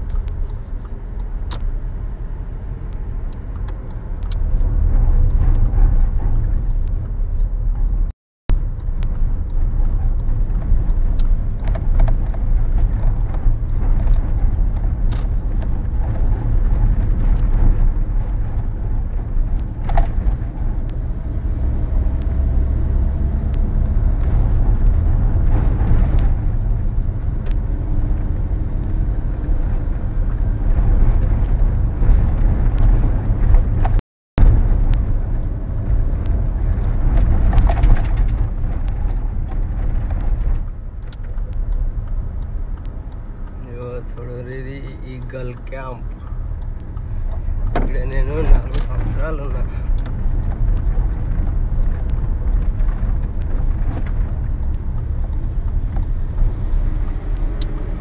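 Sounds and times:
car engine and road rumble: 0.0 - 58.0
faint clicks: 34.9 - 57.9.

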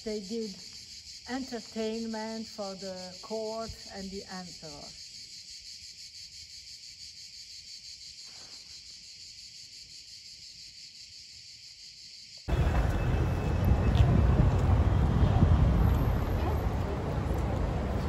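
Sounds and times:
high pulsing insect chorus: 0.0 - 14.0
city street noise: 12.5 - 18.0.

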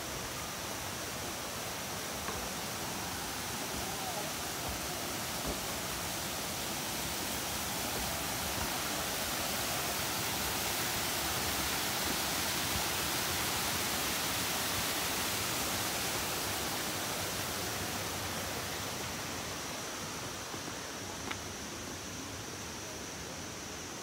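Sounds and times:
rush of falling water: 0.0 - 24.0.

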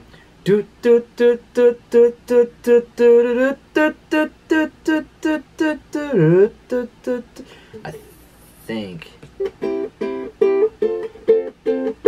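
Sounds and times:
man singing without words: 0.0 - 8.2.

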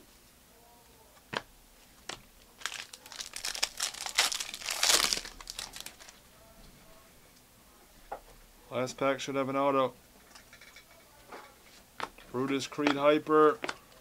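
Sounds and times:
foil wrapper crinkling and tearing: 2.4 - 6.2.

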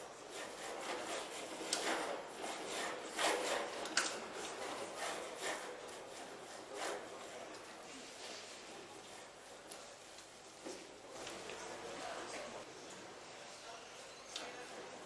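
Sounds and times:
model tower rasping and rattling: 0.0 - 8.4.

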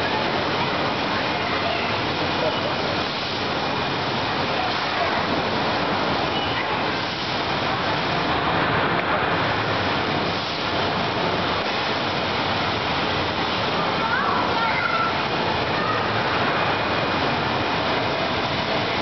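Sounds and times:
faint children's voices: 0.0 - 3.0, 6.2 - 7.0, 13.6 - 17.0.

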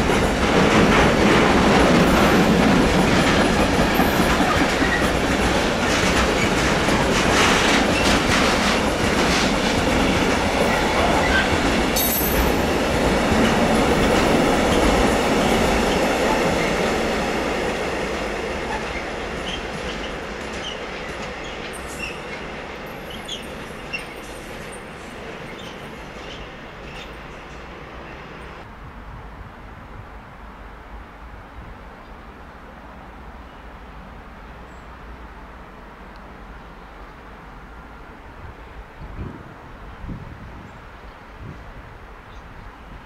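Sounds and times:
train wheels clattering: 0.0 - 27.7.

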